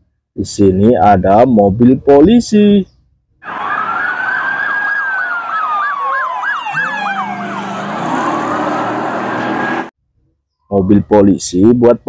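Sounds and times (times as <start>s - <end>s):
police sirens wailing: 3.4s - 9.9s
siren yelp: 3.4s - 9.9s.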